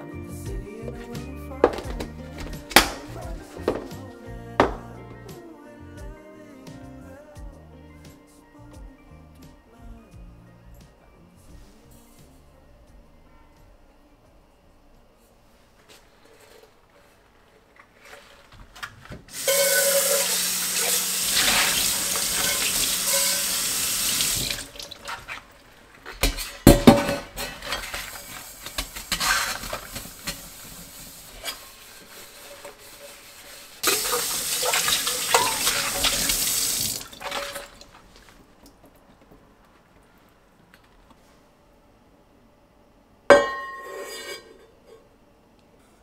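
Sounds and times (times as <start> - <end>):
steel wool scrubbing pot: 19.3 - 38.2.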